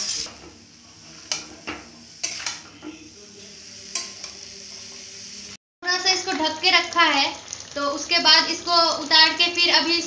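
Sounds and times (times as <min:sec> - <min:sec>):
metal spoon scraping a pan: 0:00.0 - 0:05.1
food sizzling in oil: 0:00.0 - 0:10.0.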